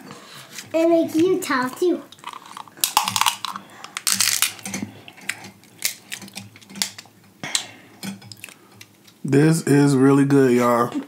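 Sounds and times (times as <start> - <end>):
crab shells cracking: 2.1 - 9.2.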